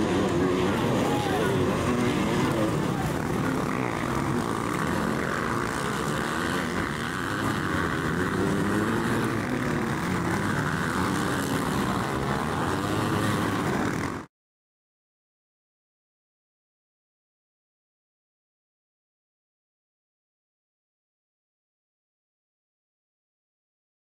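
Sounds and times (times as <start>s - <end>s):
motocross bike engines: 0.0s - 14.3s.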